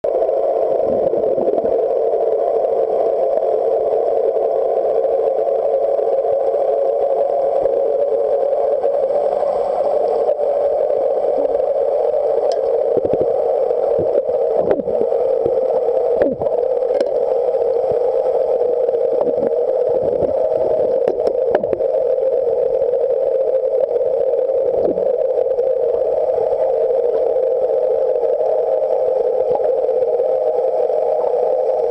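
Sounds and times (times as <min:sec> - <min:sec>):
muffled underwater engine drone: 0:00.0 - 0:31.9.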